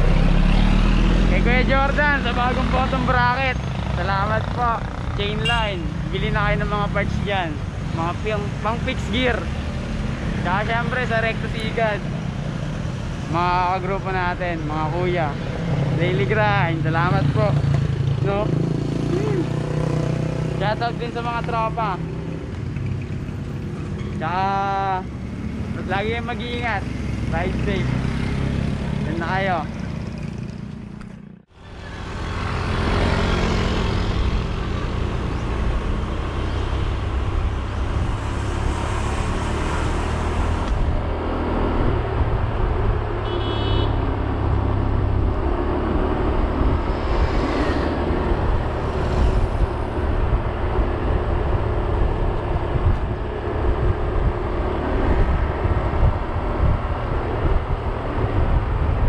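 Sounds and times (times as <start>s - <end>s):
road and tyre rumble: 0.0s - 59.0s
wind buffeting microphone: 45.0s - 59.0s.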